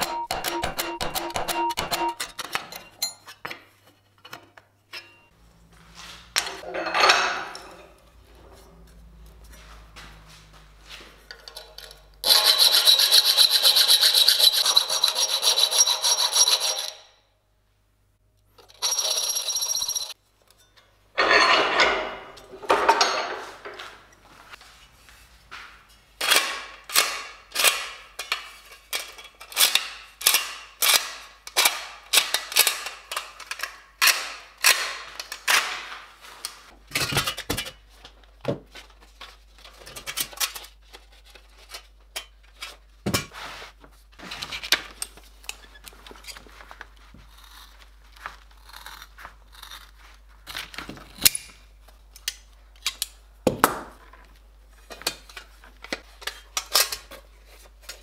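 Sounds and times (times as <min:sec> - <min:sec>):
hammer striking sheet steel: 0:00.0 - 0:02.6.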